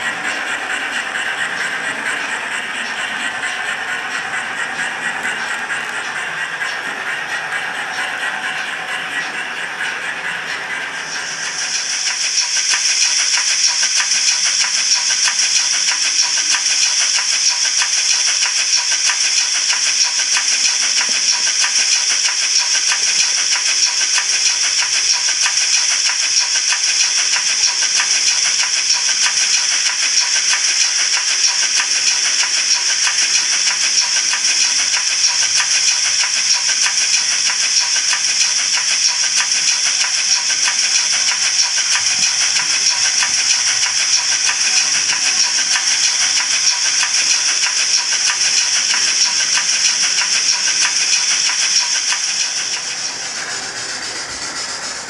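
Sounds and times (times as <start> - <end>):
model steam locomotive running: 0.0 - 55.0.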